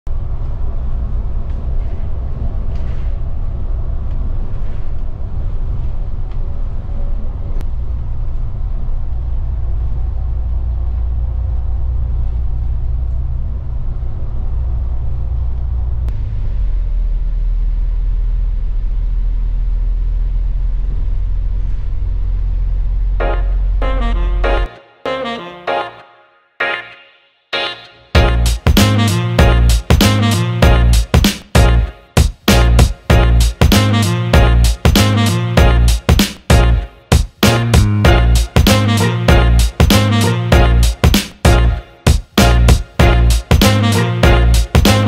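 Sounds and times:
bus engine and tyres rumbling: 0.1s - 24.5s
wavering engine hum: 0.1s - 24.7s, 32.6s - 45.0s.

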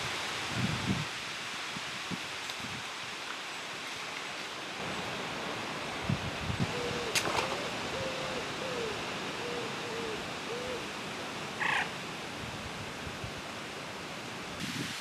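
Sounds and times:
wind noise: 0.0s - 2.9s, 5.9s - 7.4s, 14.5s - 15.0s
bird cooing: 6.7s - 10.9s, 11.6s - 11.9s.

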